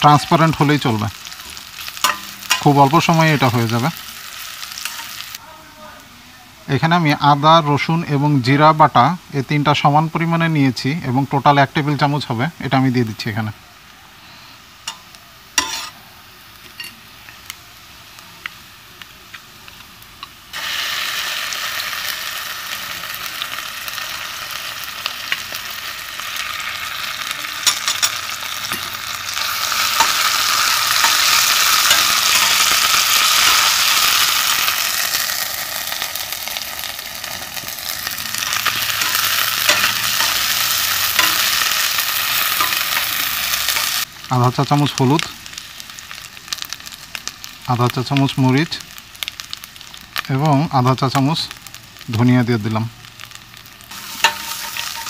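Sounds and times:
onions sizzling in oil: 0:00.0 - 0:55.0
metal spatula scraping pot: 0:15.6 - 0:16.0, 0:53.9 - 0:55.0.

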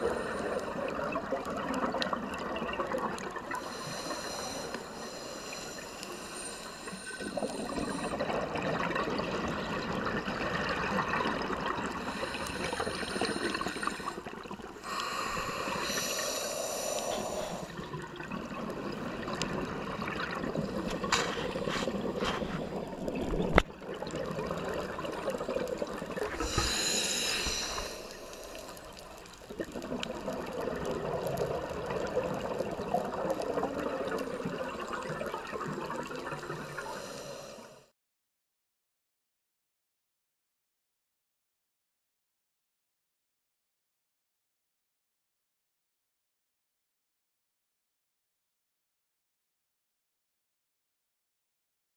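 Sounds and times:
hissing regulator inhalations: 0:00.0 - 0:00.9, 0:03.5 - 0:08.3, 0:12.0 - 0:14.2, 0:14.8 - 0:17.8, 0:26.3 - 0:29.4, 0:36.5 - 0:37.9.

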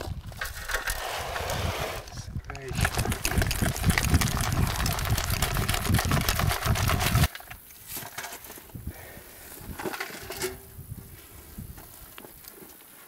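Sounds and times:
soil rattling through metal sieve: 0:00.0 - 0:08.5
soil scraping and ticking: 0:00.0 - 0:08.8.

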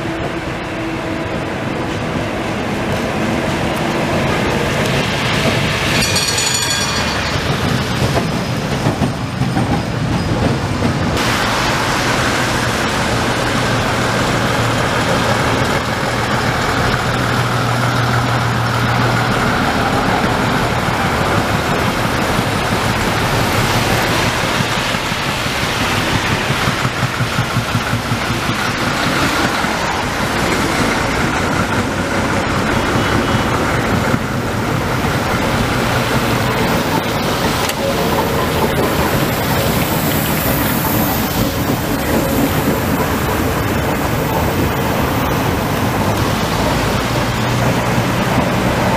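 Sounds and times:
bus and cars passing: 0:00.0 - 0:48.9
tram rolling on rails: 0:00.0 - 0:48.9
tyres hissing on wet asphalt: 0:11.1 - 0:48.9.

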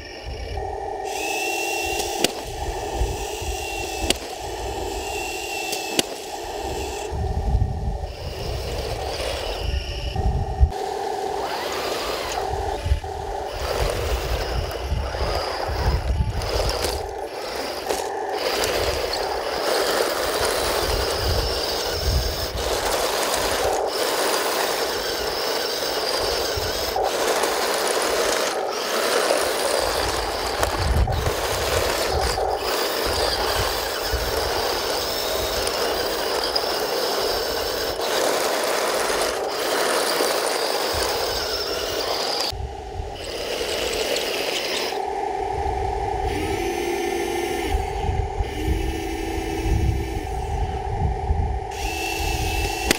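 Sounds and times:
electric motors whirring: 0:00.0 - 0:52.9
tracks rattling over dirt: 0:13.4 - 0:42.6.

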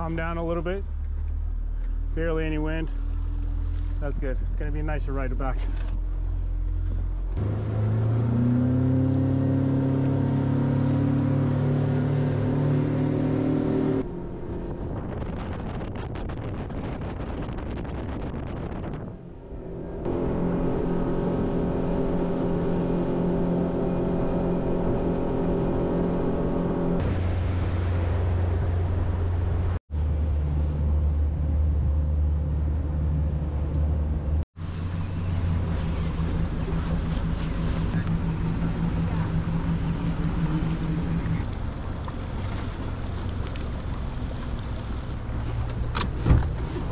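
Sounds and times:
outboard motor running: 0:20.1 - 0:30.7, 0:34.6 - 0:45.7.

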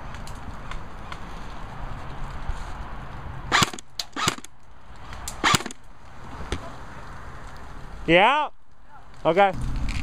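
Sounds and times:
airsoft gun shots: 0:03.5 - 0:04.5, 0:05.4 - 0:05.8.

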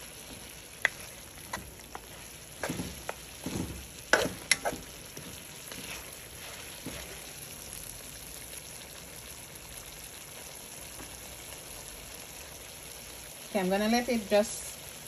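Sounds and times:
chicken sizzling and simmering: 0:00.0 - 0:15.0
spatula scraping a metal pot: 0:00.8 - 0:07.2.

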